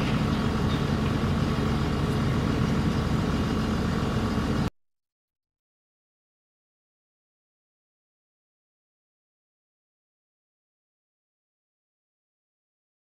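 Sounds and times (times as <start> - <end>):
low mechanical rumble: 0.0 - 4.7.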